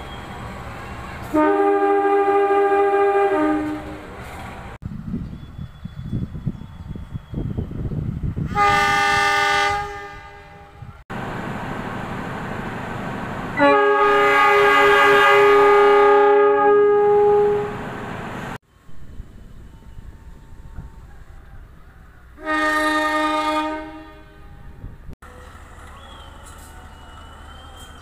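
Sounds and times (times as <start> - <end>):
locomotive horn blast: 1.2 - 4.3, 8.4 - 11.0, 13.6 - 18.4, 22.4 - 25.4
locomotive running: 10.7 - 16.1, 16.9 - 23.1, 24.4 - 28.0.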